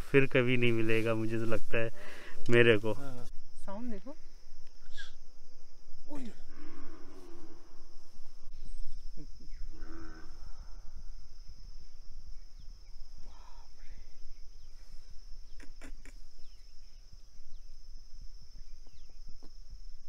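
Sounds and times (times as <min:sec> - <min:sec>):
insects droning: 0:00.0 - 0:20.0
faint bird chirps: 0:04.8 - 0:05.2, 0:08.5 - 0:11.0, 0:11.9 - 0:17.9, 0:18.5 - 0:19.7.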